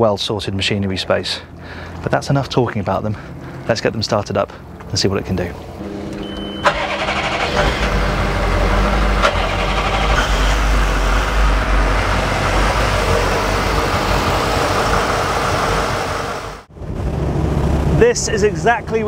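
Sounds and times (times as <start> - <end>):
diesel engines starting and idling: 0.0 - 19.0
short high beep: 5.8 - 7.0.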